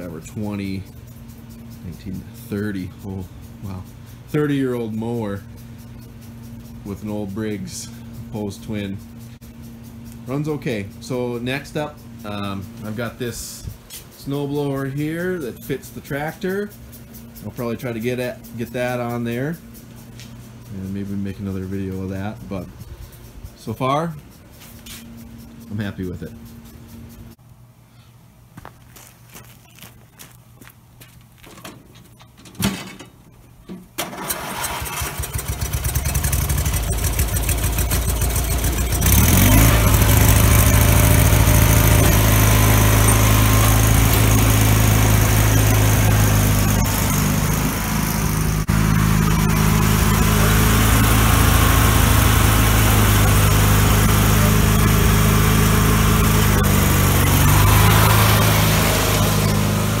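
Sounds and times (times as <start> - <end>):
lawn tractor engine running: 0.0 - 24.5, 33.7 - 60.0
engine cranked by starter: 33.9 - 60.0.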